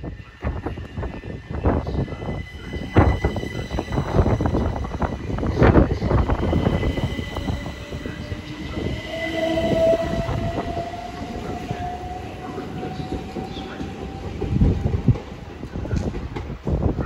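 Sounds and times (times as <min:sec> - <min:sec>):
electric train motor whine: 0:00.7 - 0:15.3
train wheels clattering on rails: 0:12.6 - 0:17.0.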